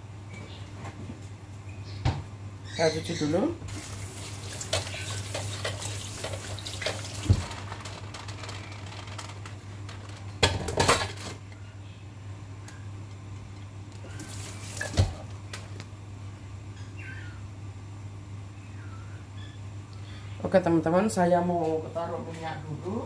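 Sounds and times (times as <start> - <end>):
water running in sink: 3.7 - 8.0, 14.1 - 15.4
dishes clattering: 10.4 - 11.4.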